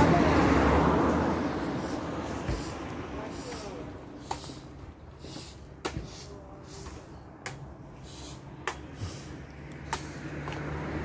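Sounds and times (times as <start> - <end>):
machete chopping coconuts: 5.8 - 6.1, 8.6 - 9.0, 9.8 - 10.7.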